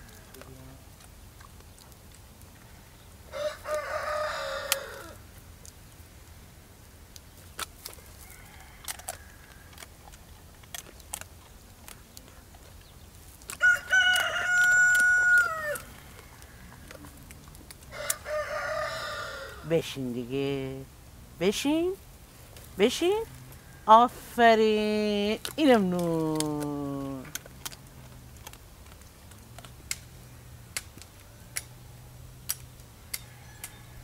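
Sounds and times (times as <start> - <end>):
rooster crowing: 3.3 - 5.2, 8.0 - 9.8, 13.6 - 16.8, 17.9 - 19.7, 33.0 - 34.0.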